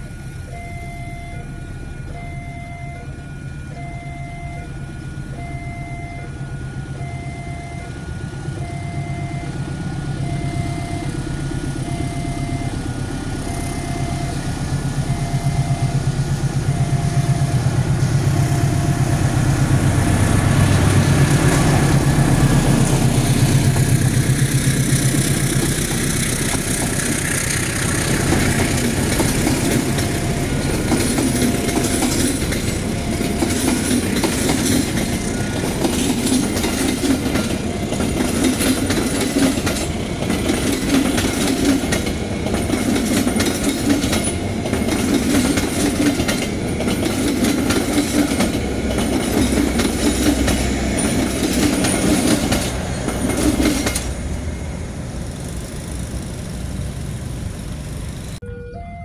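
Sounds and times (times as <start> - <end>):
diesel locomotive engine hum: 0.0 - 59.0
train coaches rumbling by: 6.2 - 58.8
wheels clacking over rail joints: 17.5 - 58.4.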